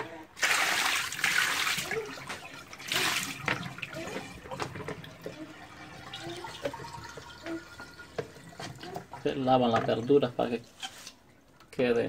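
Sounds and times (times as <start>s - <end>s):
water splashing over vegetables: 0.4s - 9.3s.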